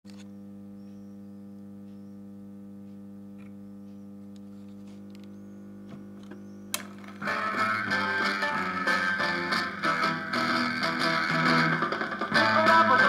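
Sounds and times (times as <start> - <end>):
steady mains hum: 0.1 - 13.0
record groove clicks: 5.9 - 13.0
music from record player: 6.8 - 13.0.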